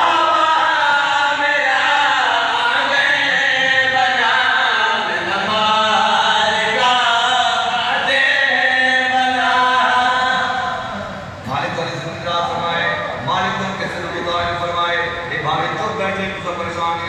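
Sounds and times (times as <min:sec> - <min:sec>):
man chanting into a microphone: 0:00.0 - 0:10.9.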